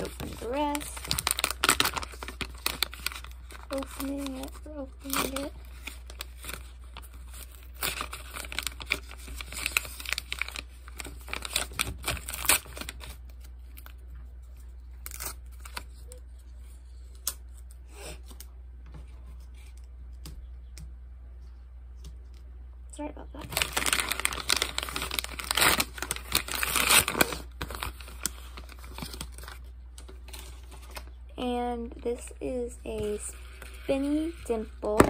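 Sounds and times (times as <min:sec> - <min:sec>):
packaging tearing and crinkling: 0:00.0 - 0:14.0, 0:15.0 - 0:16.1, 0:23.4 - 0:29.7.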